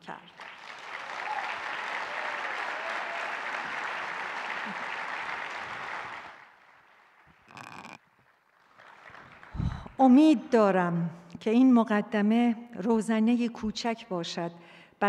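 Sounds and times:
audience applause: 0:00.4 - 0:09.8.

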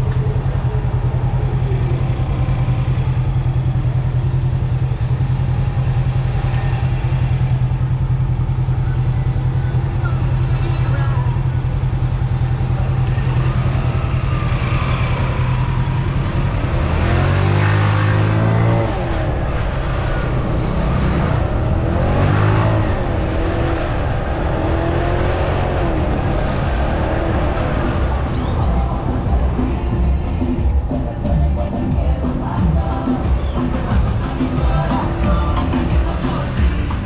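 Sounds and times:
scooter engine running: 0:00.0 - 0:19.0
wind and road noise: 0:00.0 - 0:37.0.

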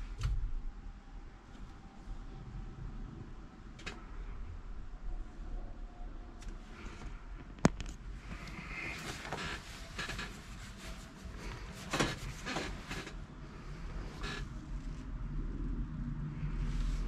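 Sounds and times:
low steady rumble: 0:00.0 - 0:17.0
handling knocks and rustles: 0:07.8 - 0:13.2.

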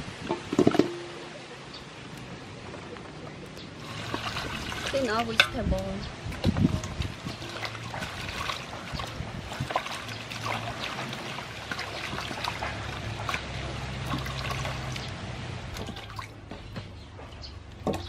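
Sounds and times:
water sloshing in metal basin: 0:03.8 - 0:18.0.

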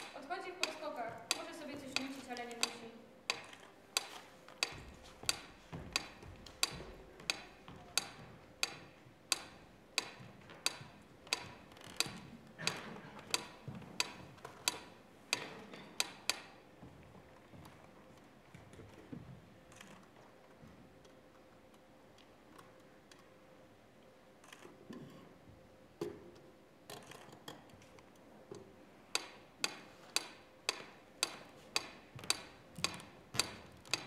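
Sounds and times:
sharp ticks: 0:00.0 - 0:16.6.

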